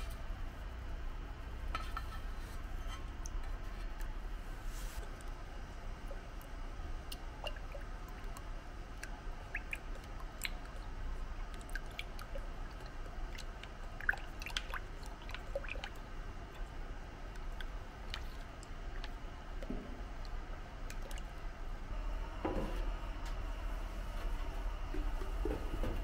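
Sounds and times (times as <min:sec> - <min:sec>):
soft wet squishing: 0:03.2 - 0:21.9.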